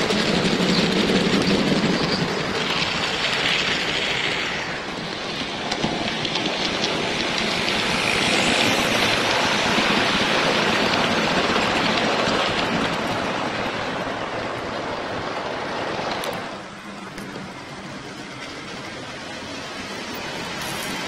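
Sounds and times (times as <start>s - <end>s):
model train wheels rumbling on rail: 0.0s - 21.0s.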